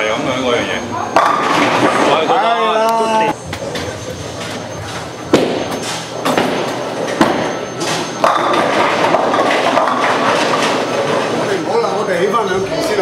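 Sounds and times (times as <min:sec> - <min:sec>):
bowling balls rolling rumble: 0:01.0 - 0:02.7, 0:03.6 - 0:11.8
bowling balls thudding on lane: 0:01.1 - 0:02.3, 0:05.3 - 0:11.4.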